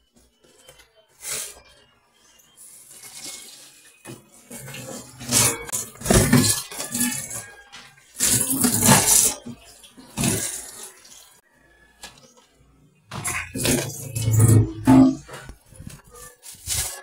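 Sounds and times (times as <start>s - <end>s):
plastic container clattering: 4.1s - 10.8s.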